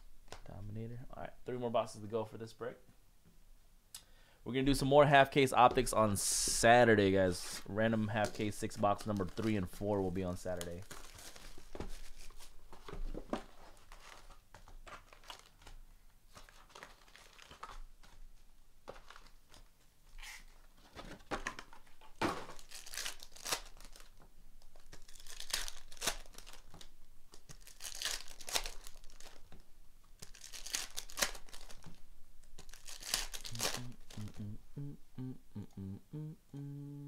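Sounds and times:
foil packs rustling: 0:07.4 - 0:12.5, 0:16.4 - 0:17.8, 0:22.4 - 0:24.2, 0:24.8 - 0:26.9, 0:27.5 - 0:29.6, 0:30.2 - 0:34.3
plastic wrap crinkling and tearing: 0:08.1 - 0:12.5, 0:15.0 - 0:15.7, 0:16.3 - 0:18.2, 0:22.4 - 0:29.6, 0:30.2 - 0:34.4.

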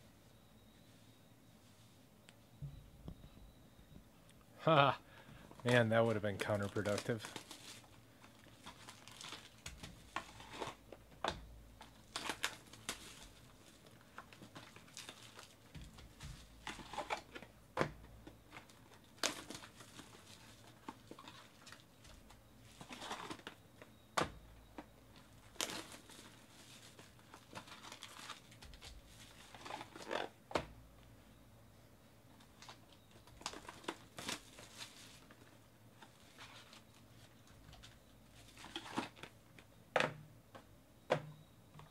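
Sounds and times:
plastic wrap crinkling and tearing: 0:05.6 - 0:10.8, 0:11.8 - 0:17.4, 0:18.6 - 0:21.9, 0:25.4 - 0:30.3, 0:32.6 - 0:36.9.

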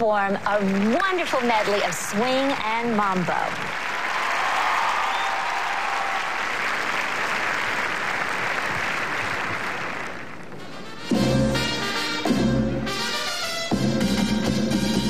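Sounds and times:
audience applauding: 0:00.0 - 0:02.5, 0:03.1 - 0:10.9
brass dance band music: 0:10.6 - 0:15.0.

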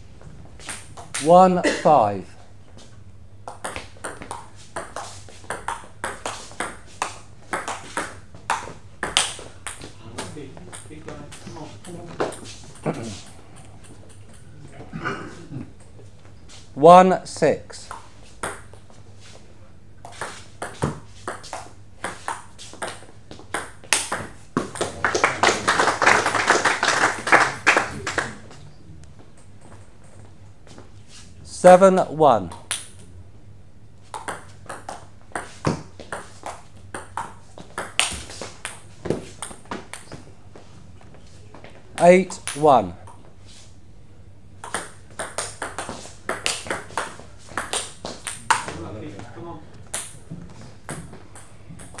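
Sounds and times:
table tennis ball hits: 0:03.5 - 0:13.0, 0:17.9 - 0:18.8, 0:20.1 - 0:28.4, 0:34.1 - 0:40.2, 0:44.6 - 0:48.9, 0:49.8 - 0:52.0.

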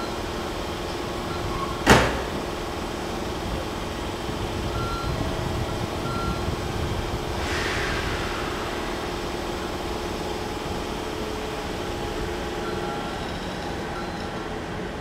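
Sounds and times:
distant locomotive rumble: 0:05.5 - 0:11.0
faint hum: 0:05.7 - 0:11.2.

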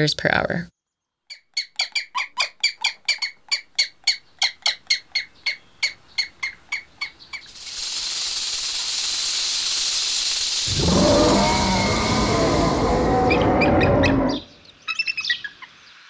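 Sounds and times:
steady hiss: 0:07.4 - 0:14.3.

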